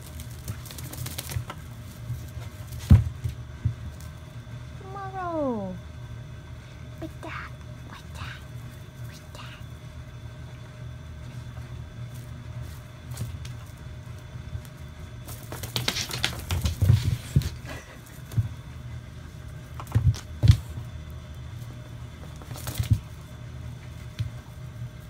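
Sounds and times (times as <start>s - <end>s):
steady low hum: 0.0s - 25.0s
cat scrabbling on wooden floor: 15.2s - 18.6s.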